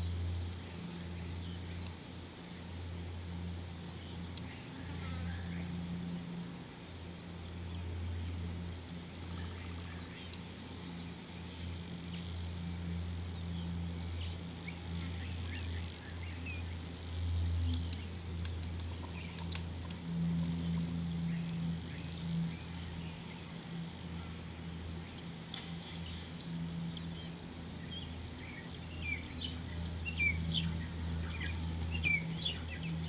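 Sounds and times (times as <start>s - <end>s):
steady low hum: 0.0s - 33.0s
bird chirps and twitters: 26.0s - 33.0s.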